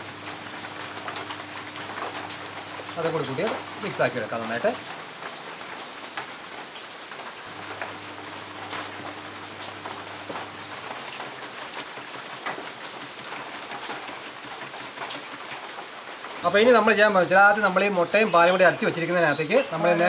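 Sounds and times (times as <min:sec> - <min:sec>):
heavy rain: 0:00.0 - 0:20.0.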